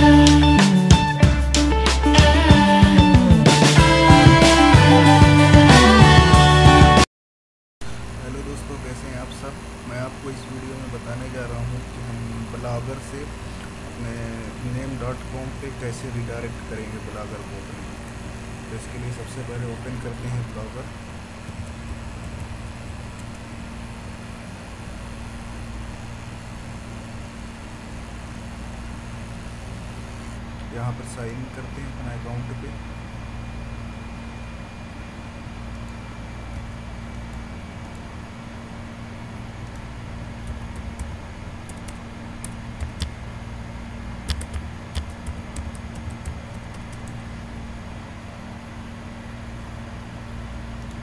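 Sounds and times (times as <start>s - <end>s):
microphone hum and hiss: 7.8s - 51.0s
keyboard keystrokes: 41.7s - 43.1s, 44.2s - 47.2s.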